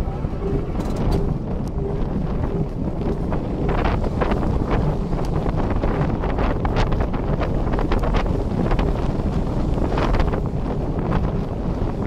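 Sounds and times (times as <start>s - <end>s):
tram rumbling on track: 0.0s - 12.0s
wind buffeting microphone: 0.0s - 12.0s
sharp clicks and rattles: 0.7s - 1.8s.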